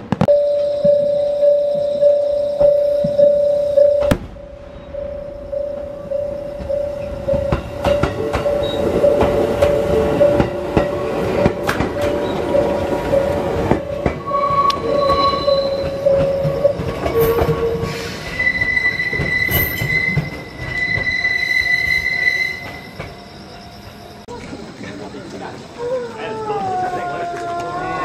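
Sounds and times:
wheels squealing on rail: 0:04.7 - 0:24.7
train wheels clicking over rail joints: 0:05.5 - 0:21.2.

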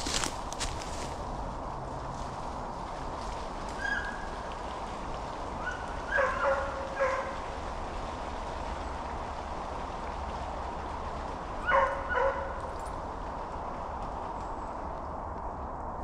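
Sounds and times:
distant hounds baying: 0:03.8 - 0:04.5, 0:05.5 - 0:07.6, 0:11.5 - 0:12.9.

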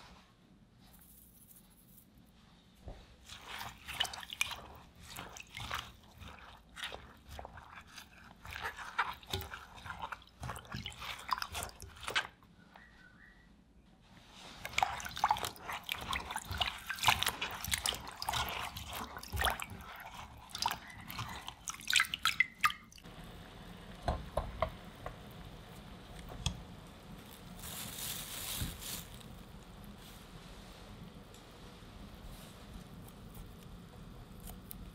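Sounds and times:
hands swishing vegetables in water: 0:02.8 - 0:12.4, 0:14.2 - 0:23.1, 0:27.1 - 0:31.0
water splashing and dripping: 0:03.3 - 0:12.3, 0:14.6 - 0:23.1.

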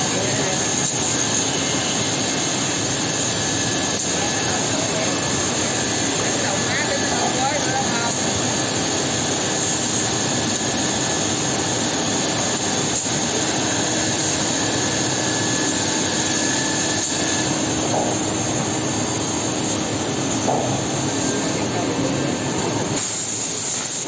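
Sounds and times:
drilling machine high whine: 0:00.0 - 0:24.0.

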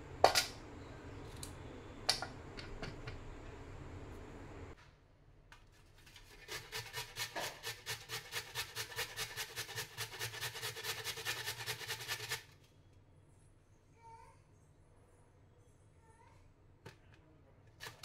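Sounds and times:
carrot grated on metal grater: 0:06.0 - 0:12.5, 0:17.8 - 0:18.0.

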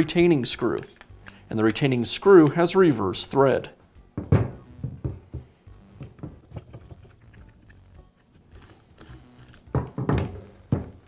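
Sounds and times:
screwdriver clicks and scrapes: 0:00.6 - 0:01.8, 0:06.6 - 0:09.7.

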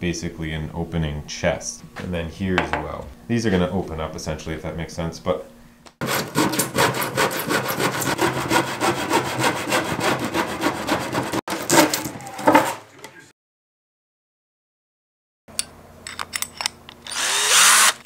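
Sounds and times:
hand saw cutting plywood: 0:06.0 - 0:12.8.

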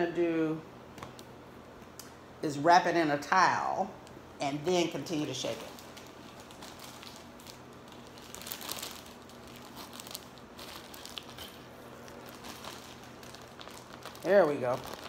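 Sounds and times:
plastic bag of ice crinkling: 0:05.0 - 0:15.0.

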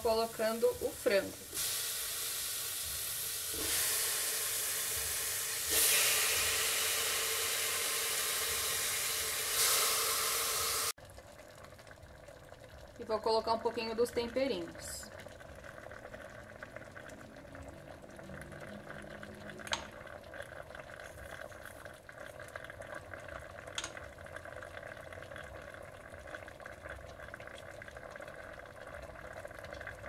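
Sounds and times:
chicken sizzling in oil: 0:00.0 - 0:11.1.

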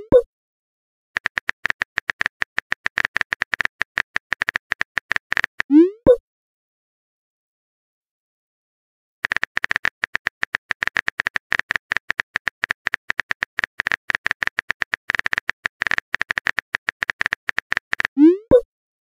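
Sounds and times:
phone keyboard typing clicks: 0:01.2 - 0:05.7, 0:09.2 - 0:18.6.

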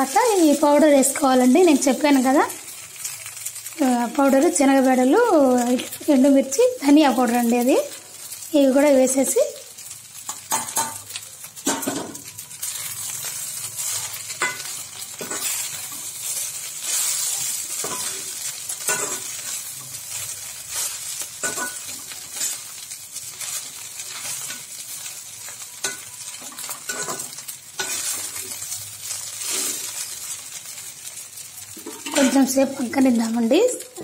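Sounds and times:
frying sizzle: 0:00.0 - 0:34.0
spatula scraping a pan: 0:10.2 - 0:30.8.

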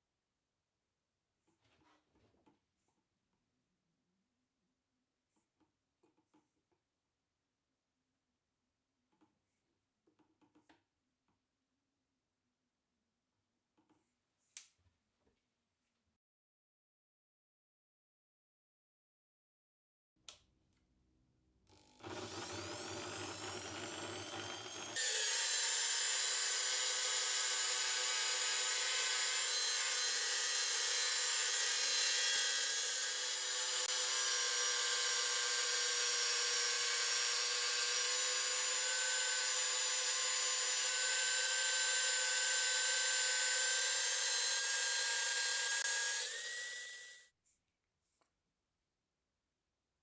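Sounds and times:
electric drill motor whine: 0:21.7 - 0:47.3
wood being sanded: 0:22.1 - 0:46.2.

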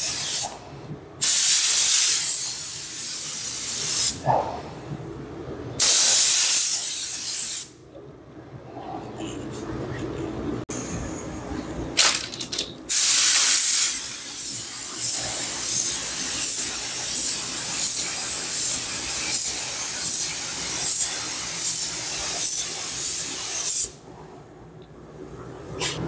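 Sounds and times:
paint spray gun hissing: 0:01.2 - 0:04.2, 0:05.8 - 0:07.7, 0:12.9 - 0:23.9.

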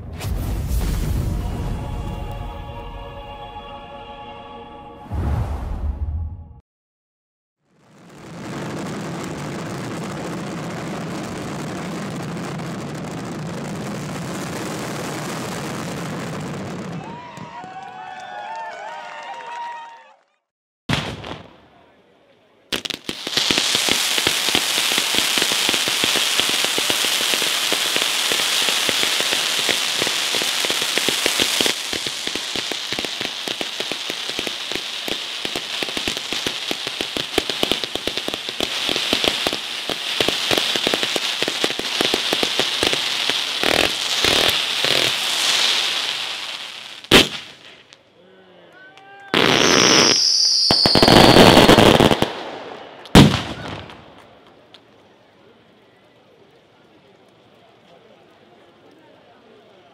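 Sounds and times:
sharp firework bang: 0:00.0 - 0:02.1, 0:20.9 - 0:21.5, 0:47.1 - 0:47.8, 0:50.8 - 0:54.2
firework crackling: 0:00.0 - 0:03.2, 0:07.7 - 0:18.1, 0:22.7 - 0:48.0, 0:49.3 - 0:55.0
high firework whistle: 0:48.9 - 0:54.0.

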